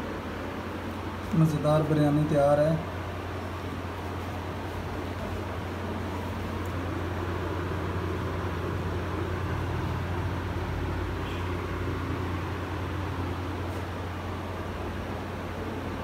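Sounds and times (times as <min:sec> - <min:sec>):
low hum with hiss: 0:00.0 - 0:16.0.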